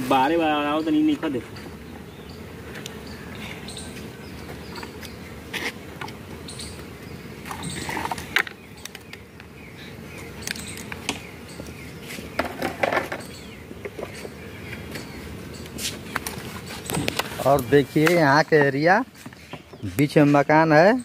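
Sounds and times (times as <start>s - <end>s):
wooden beehive boxes knocking: 3.9s - 9.6s, 10.4s - 20.3s.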